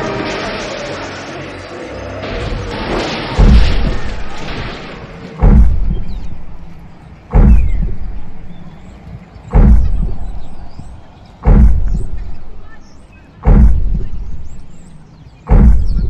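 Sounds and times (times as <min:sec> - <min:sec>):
heavy booming footsteps: 0:03.4 - 0:16.0.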